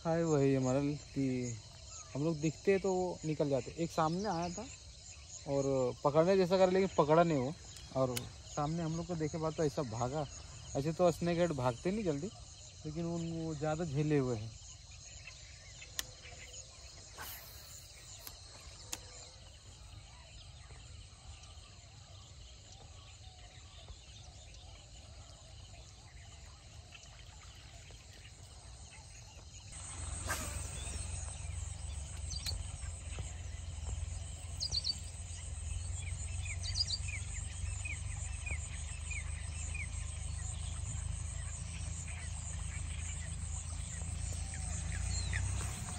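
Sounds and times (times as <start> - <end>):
birds chirping: 0.0 - 45.9
low steady rumble: 29.8 - 45.9.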